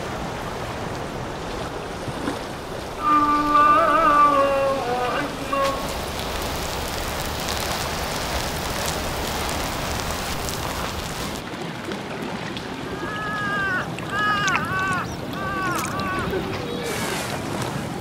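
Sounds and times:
river water rushing: 0:00.0 - 0:18.0
faint crackles: 0:00.9 - 0:12.7.

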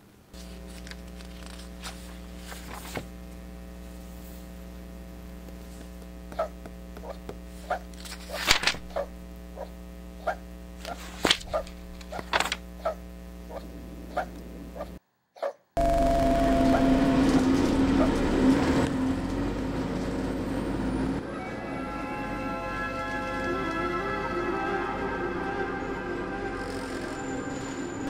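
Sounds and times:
buzzy mains hum: 0:00.0 - 0:15.0, 0:15.8 - 0:19.2.

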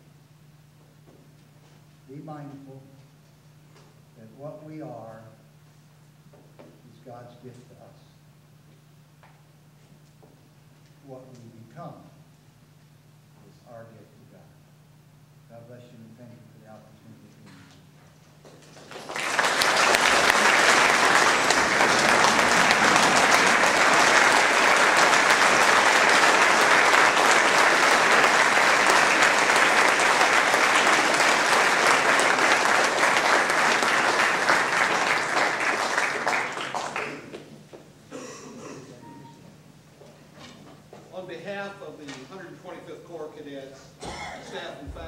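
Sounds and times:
crowd applauding: 0:18.5 - 0:37.5.

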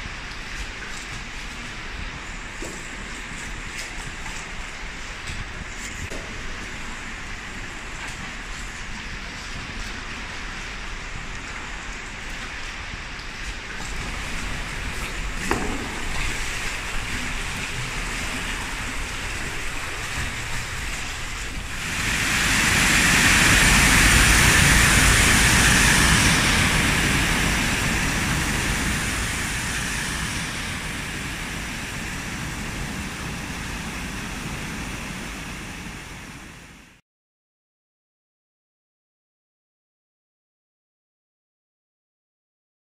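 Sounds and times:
water pouring over a weir: 0:06.3 - 0:35.1
river water flowing: 0:10.2 - 0:36.8.

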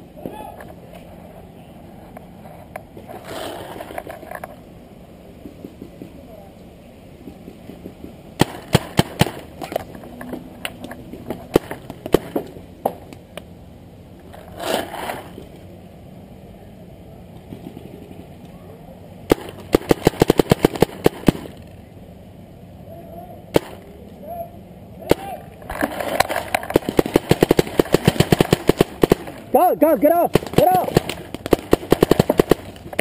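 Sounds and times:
paintball markers firing: 0:19.3 - 0:21.6, 0:26.1 - 0:29.5, 0:30.3 - 0:33.0.

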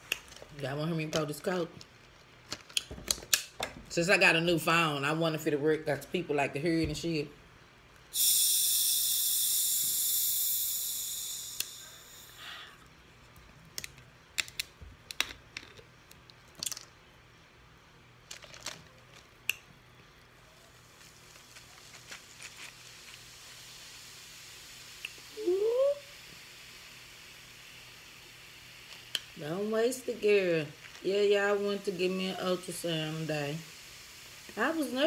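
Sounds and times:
hissing suck: 0:08.1 - 0:12.9, 0:29.4 - 0:35.0
shells cracking apart: 0:16.5 - 0:16.9.

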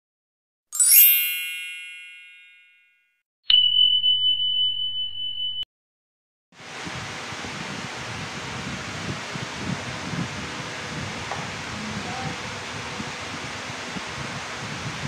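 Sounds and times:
shimmering chime: 0:00.8 - 0:05.6
high ringing tone: 0:00.8 - 0:05.7.

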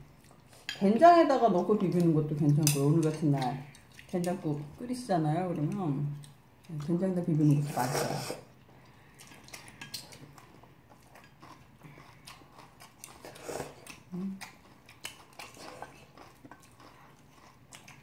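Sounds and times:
chewing sounds: 0:01.8 - 0:04.7, 0:08.0 - 0:18.0.

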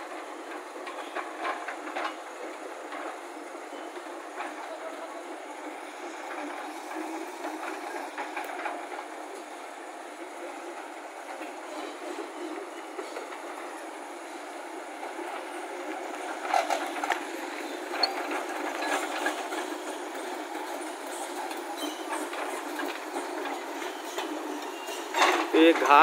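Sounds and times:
heavy diesel machinery running: 0:00.0 - 0:26.0
metallic clanks and clatter: 0:00.4 - 0:04.7, 0:16.1 - 0:26.0.

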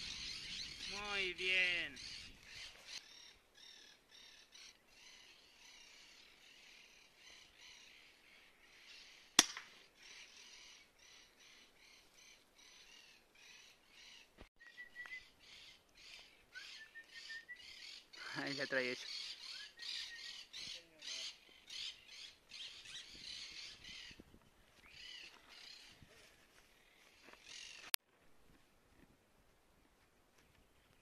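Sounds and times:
birds calling: 0:00.0 - 0:24.2, 0:24.8 - 0:26.0
air rifle shot: 0:09.4 - 0:09.8.

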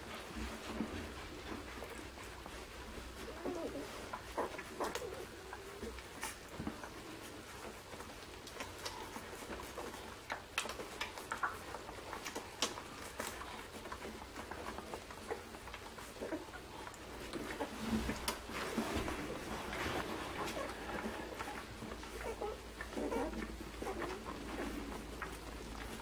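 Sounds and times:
puppies suckling: 0:00.0 - 0:26.0
puppy squeaking: 0:22.1 - 0:24.4.

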